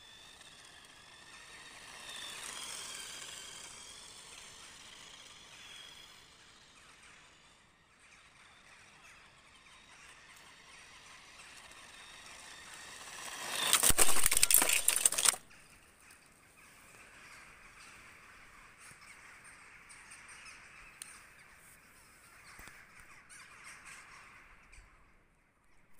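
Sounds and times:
toy car motor whine: 0.0s - 15.4s
wheels rattling on paving: 0.0s - 15.8s.

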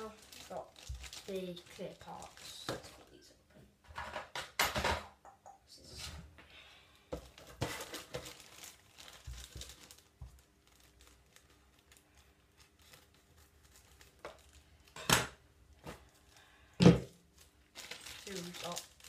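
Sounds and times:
plastic packaging crinkling: 0.0s - 3.1s, 7.2s - 15.0s, 17.2s - 19.0s.

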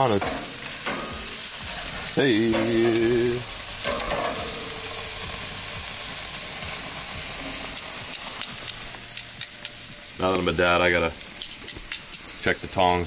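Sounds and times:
sausages sizzling on grill: 0.0s - 13.0s
man calling out: 2.2s - 3.5s.

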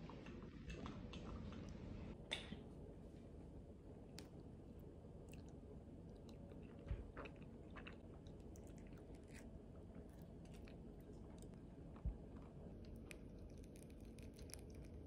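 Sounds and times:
soft chewing: 5.2s - 15.0s.

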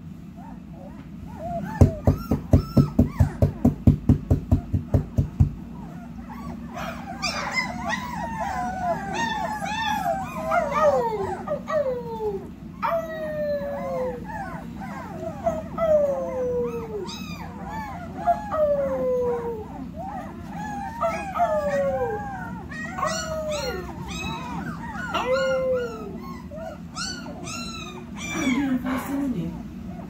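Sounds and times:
puppies whining: 0.0s - 30.0s
high puppy yips: 0.4s - 3.7s, 5.8s - 11.4s, 22.7s - 28.7s.

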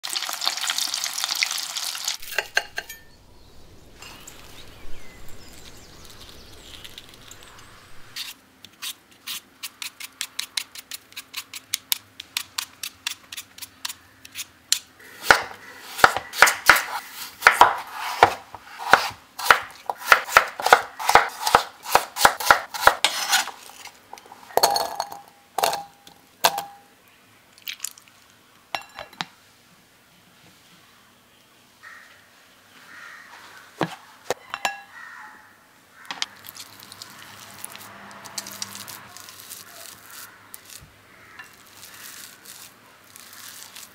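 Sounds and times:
oil sizzling: 0.0s - 8.3s, 36.4s - 43.9s
glass bowl clinking: 2.2s - 3.2s, 24.5s - 26.9s, 28.8s - 29.2s, 34.4s - 34.9s
peeler scraping potato: 8.1s - 24.0s, 36.5s - 43.9s
knife cutting on wooden board: 15.2s - 23.8s.

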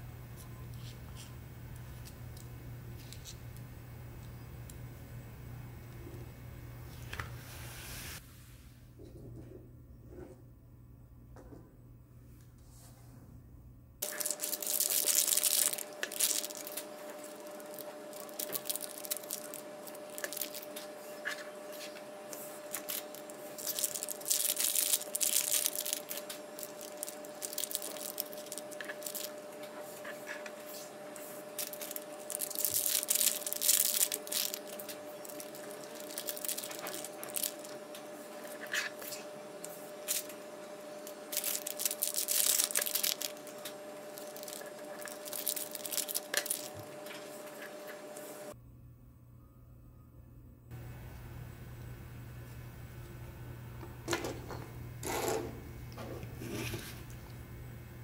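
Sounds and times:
faint steady hum: 0.0s - 58.0s
plastic bags crinkling and tearing: 14.0s - 30.9s, 31.5s - 39.3s, 39.9s - 40.4s, 41.0s - 47.6s.

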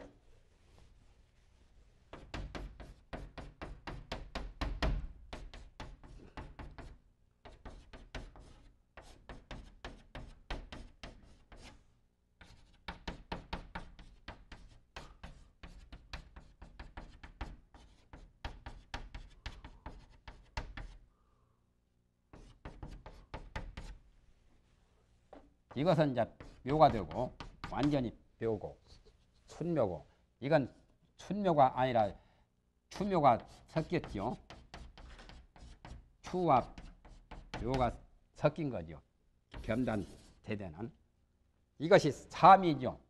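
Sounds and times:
chalk tapping and scraping: 2.1s - 21.1s, 22.3s - 24.0s, 25.3s - 28.2s, 32.9s - 38.0s, 39.5s - 40.6s.

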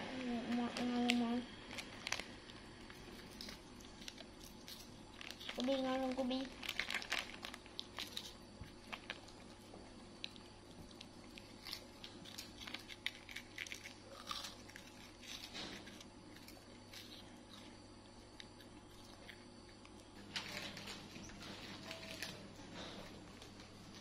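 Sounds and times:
wafer biscuits crunching: 1.7s - 20.8s.

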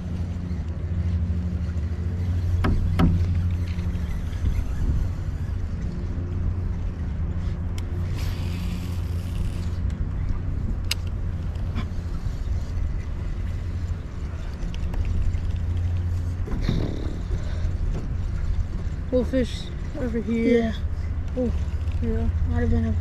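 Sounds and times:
boat motor humming: 0.0s - 23.0s
sharp clicks: 10.8s - 11.6s.

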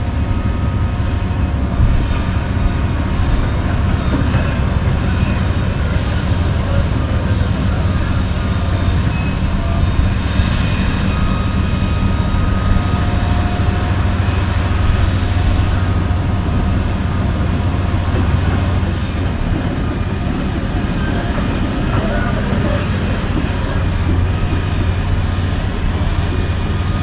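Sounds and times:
diesel engine idling: 5.9s - 27.0s.

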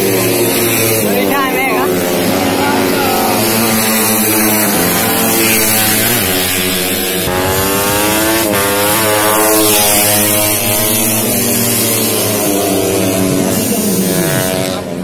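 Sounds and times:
motorcycle passing close by: 0.0s - 15.0s
other motorcycle engines: 0.0s - 15.0s.

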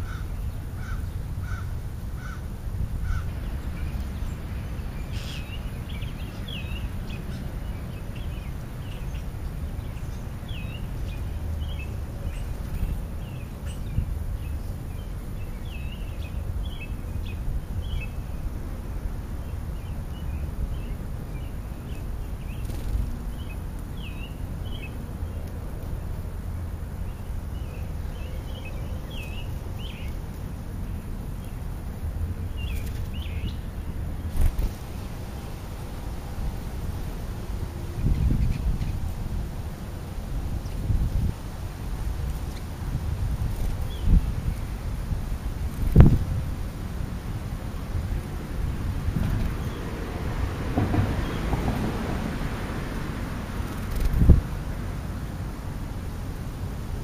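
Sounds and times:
birds chirping: 0.0s - 18.5s, 19.4s - 40.0s, 42.2s - 44.8s.

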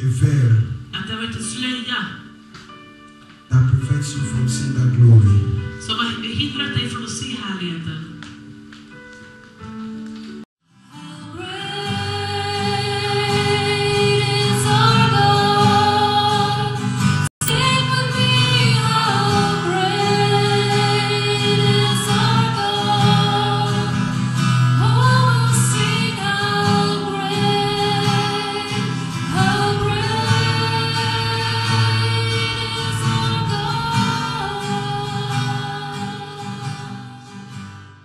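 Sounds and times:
instrumental accompaniment: 1.6s - 10.5s
voices singing held notes: 17.4s - 37.3s.

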